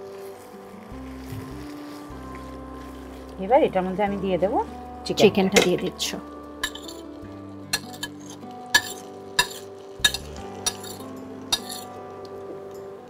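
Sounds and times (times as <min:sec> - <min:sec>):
metal spoon clinking on plate: 0:06.6 - 0:07.0, 0:07.8 - 0:11.9.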